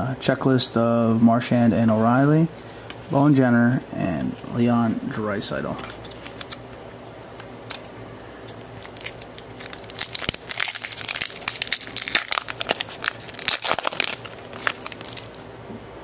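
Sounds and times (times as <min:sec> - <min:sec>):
foil wrapper tearing and crinkling: 0:07.3 - 0:15.4.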